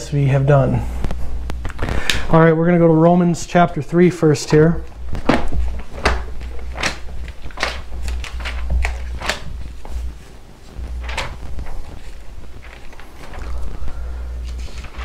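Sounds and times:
low steady rumble: 0:00.0 - 0:15.0
book pages turning: 0:04.5 - 0:15.0.

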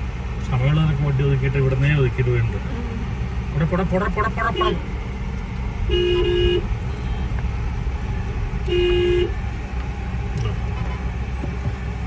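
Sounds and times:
car engine rumbling: 0:00.0 - 0:12.0
vehicle horn honking: 0:04.0 - 0:04.8, 0:05.9 - 0:07.4, 0:08.6 - 0:09.4.

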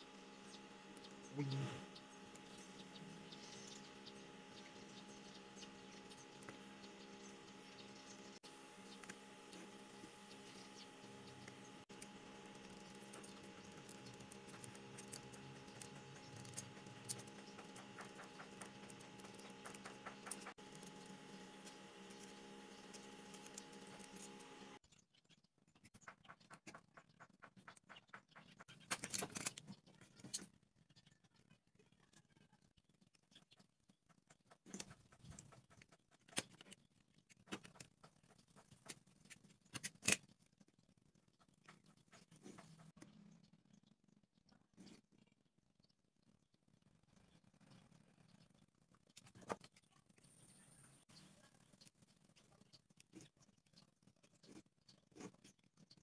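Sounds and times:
low electrical hum: 0:00.0 - 0:24.8
knife cutting and scraping wood: 0:08.8 - 0:24.8.

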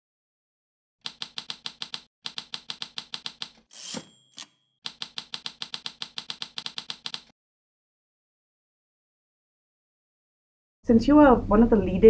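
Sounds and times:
typewriter bell ding: 0:01.1 - 0:07.3
typewriter keys clacking: 0:01.1 - 0:07.3
carriage return sliding: 0:03.7 - 0:04.6.

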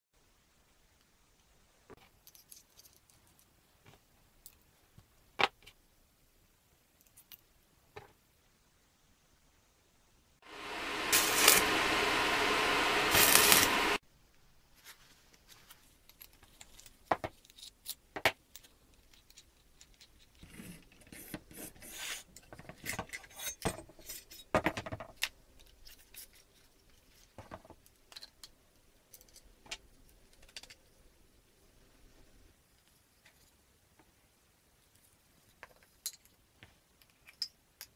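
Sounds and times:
clicks and knocks of parts handled: 0:01.9 - 0:05.8, 0:16.0 - 0:21.0, 0:35.5 - 0:37.9
angle grinder cutting metal: 0:10.5 - 0:14.0.

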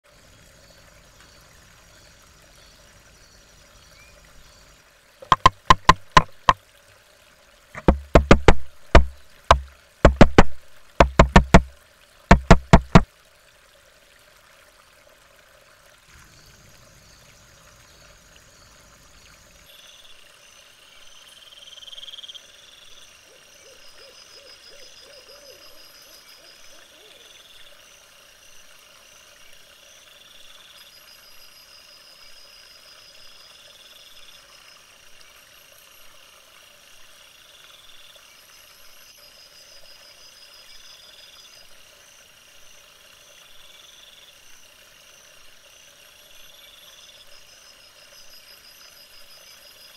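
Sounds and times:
woodpecker pecking wood: 0:05.2 - 0:06.6, 0:07.8 - 0:11.7, 0:12.3 - 0:13.0.

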